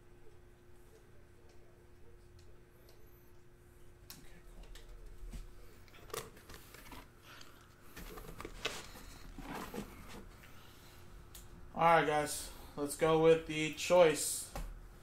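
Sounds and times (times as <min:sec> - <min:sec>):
packaging rustling and crinkling: 0:06.0 - 0:10.3.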